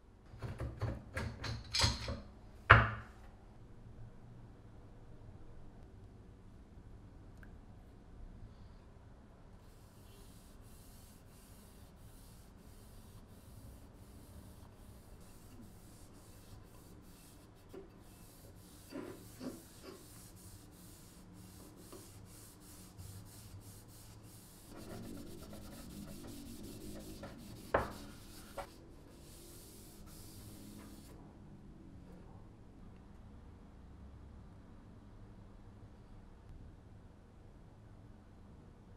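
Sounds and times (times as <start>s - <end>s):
cotton pad rubbing wood: 9.7s - 31.1s.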